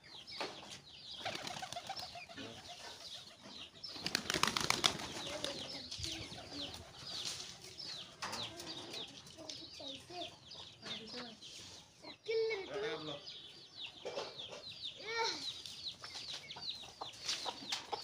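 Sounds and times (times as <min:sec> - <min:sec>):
pigeon wings flapping: 0:01.2 - 0:02.1, 0:04.0 - 0:05.7.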